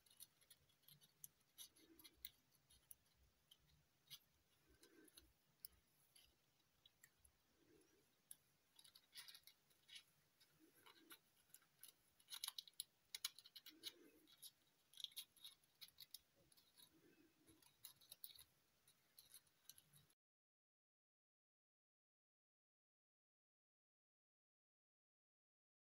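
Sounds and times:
metallic paper crinkling: 0.0s - 20.2s.

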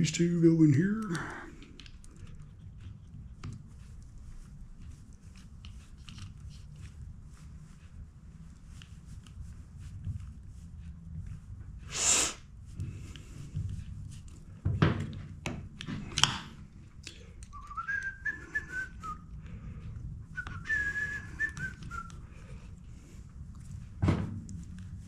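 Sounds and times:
person whistling: 17.5s - 19.2s, 20.4s - 22.2s.

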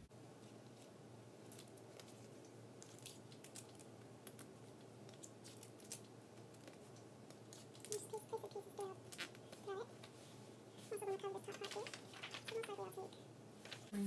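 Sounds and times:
paper and tape clicks and rustles: 0.4s - 8.2s, 11.0s - 13.9s.

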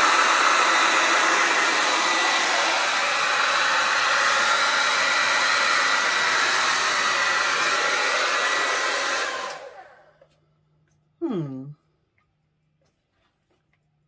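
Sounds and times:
hair dryer running: 0.0s - 10.4s.

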